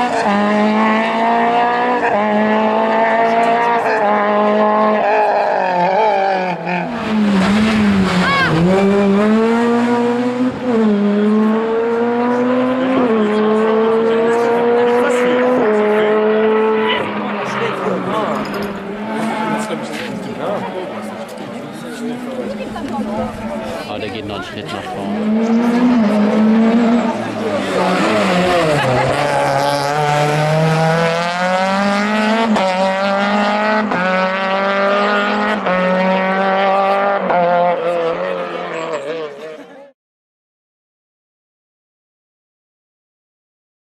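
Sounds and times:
car engine accelerating hard: 0:00.0 - 0:39.9.

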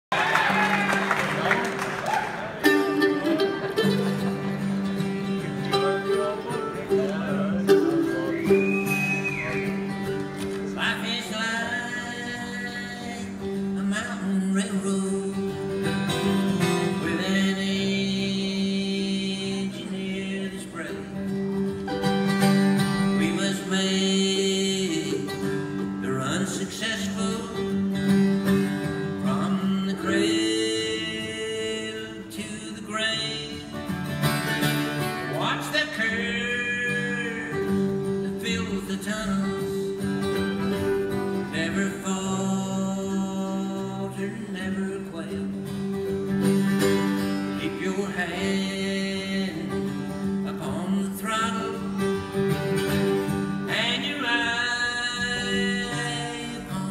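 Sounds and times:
acoustic guitar: 0:00.1 - 0:56.9
mandolin: 0:02.5 - 0:56.9
man singing: 0:10.6 - 0:21.4, 0:22.9 - 0:28.2, 0:28.8 - 0:34.0, 0:35.0 - 0:46.3, 0:47.1 - 0:52.5, 0:53.5 - 0:56.9.

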